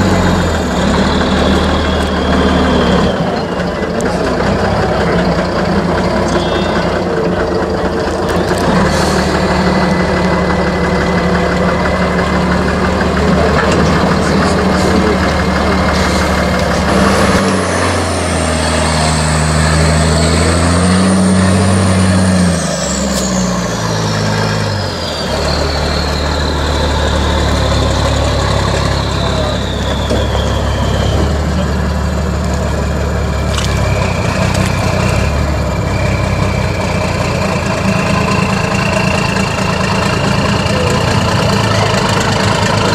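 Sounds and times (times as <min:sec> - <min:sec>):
diesel truck engine in mud: 0:00.0 - 0:42.9.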